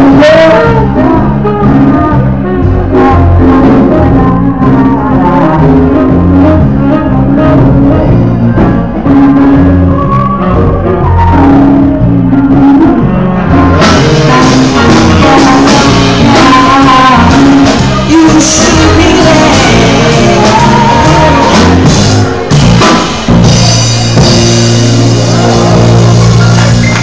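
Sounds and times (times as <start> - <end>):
live band playing: 0.0 - 27.0
saxophone: 0.0 - 27.0
voices singing: 9.8 - 22.6.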